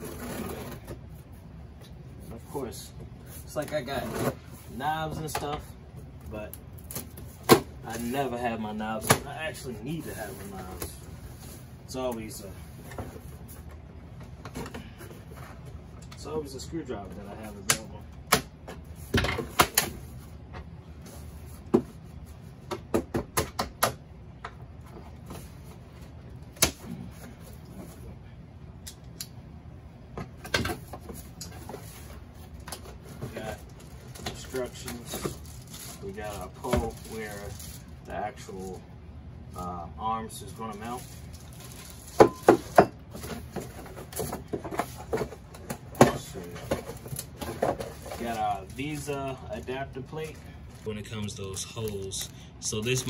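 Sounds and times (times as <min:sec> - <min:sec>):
packaging rustling: 0:31.6 - 0:38.8, 0:40.7 - 0:53.0.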